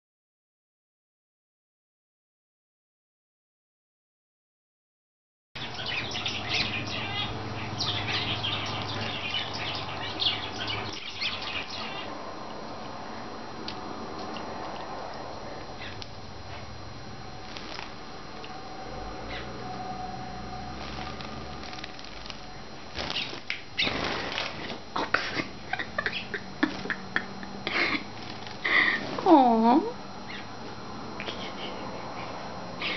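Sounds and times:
finches chirping: 0:05.6 - 0:12.2, 0:15.8 - 0:16.0, 0:19.2 - 0:19.6, 0:20.8 - 0:24.8, 0:26.0 - 0:26.8, 0:30.2 - 0:30.6
steady low hum: 0:05.6 - 0:32.9
birds splashing in water: 0:17.4 - 0:18.0, 0:20.8 - 0:24.8
wings fluttering: 0:17.4 - 0:18.5, 0:20.7 - 0:24.8, 0:25.7 - 0:27.3, 0:28.0 - 0:29.2.

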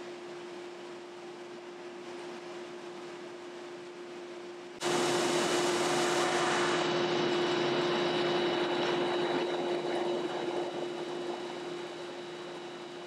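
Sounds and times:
sander humming: 0:04.8 - 0:13.0.

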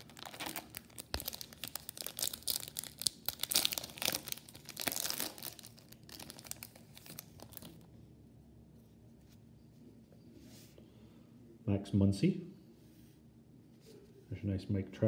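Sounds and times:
foil wrapper crinkling: 0:00.0 - 0:07.8.

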